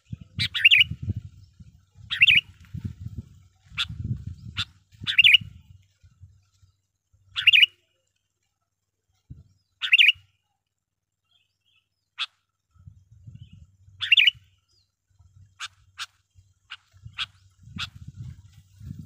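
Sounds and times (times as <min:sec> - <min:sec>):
bird warbling calls: 0:00.0 - 0:02.6, 0:03.6 - 0:05.5, 0:07.3 - 0:07.8, 0:09.6 - 0:10.3, 0:11.7 - 0:12.5, 0:13.3 - 0:18.3
faint low rumble: 0:00.0 - 0:07.4.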